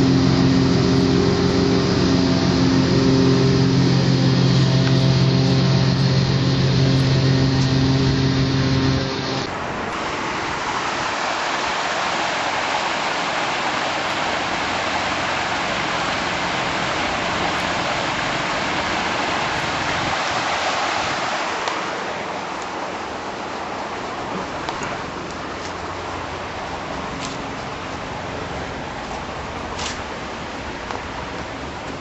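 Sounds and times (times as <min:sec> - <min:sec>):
water rushing through lock gate: 0:00.0 - 0:32.0.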